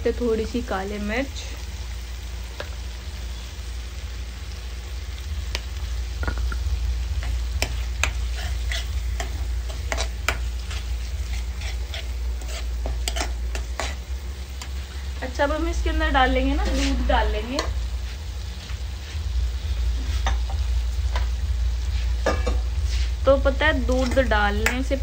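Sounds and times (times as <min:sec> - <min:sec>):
faint sizzle: 0:00.0 - 0:25.0
steady low hum: 0:00.0 - 0:25.0
spoon scraping a pan: 0:07.2 - 0:15.1, 0:16.4 - 0:17.8, 0:20.0 - 0:21.3, 0:21.9 - 0:23.2.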